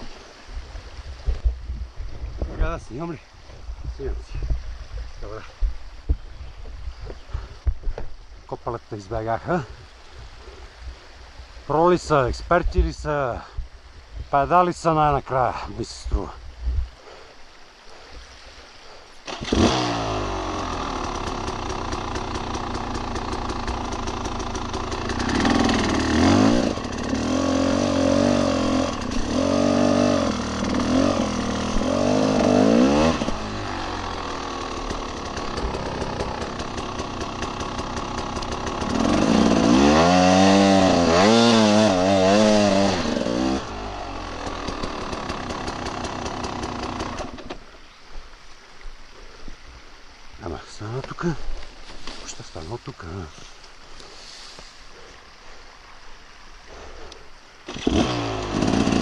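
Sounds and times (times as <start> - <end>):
dirt bike engine revving: 19.2 - 47.6, 57.7 - 59.0.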